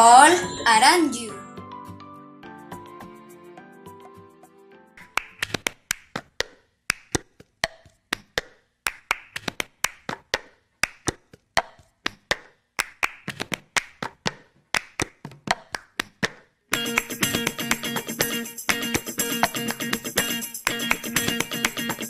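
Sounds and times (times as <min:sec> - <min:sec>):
hand claps: 0:05.0 - 0:22.0.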